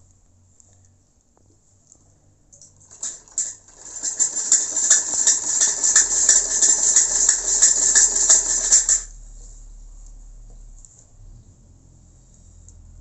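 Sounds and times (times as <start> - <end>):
sewing machine clatter: 2.8 - 9.1.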